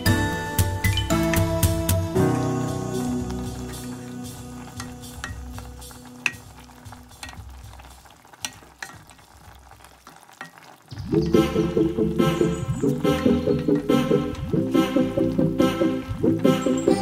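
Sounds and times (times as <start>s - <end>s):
background music: 0.0s - 9.8s, 11.0s - 17.0s
wooden spoon stirring soup: 3.2s - 10.9s.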